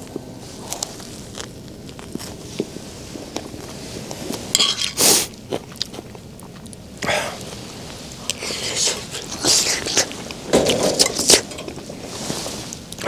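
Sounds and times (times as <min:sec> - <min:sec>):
crunch biting crusty bread: 0:00.6 - 0:02.7.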